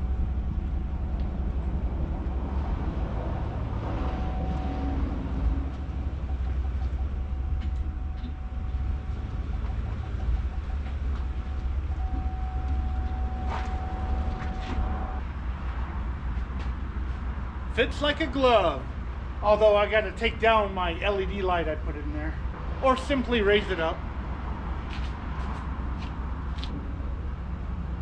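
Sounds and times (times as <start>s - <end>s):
thin high whine: 0.0s - 16.5s
pickup truck engine rumbling: 0.0s - 28.0s.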